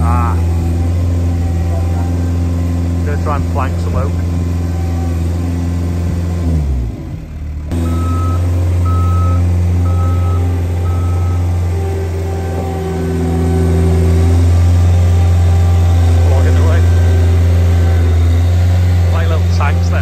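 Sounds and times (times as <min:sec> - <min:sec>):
diesel engine running: 0:00.0 - 0:20.0
backup alarm beeping: 0:07.7 - 0:11.7.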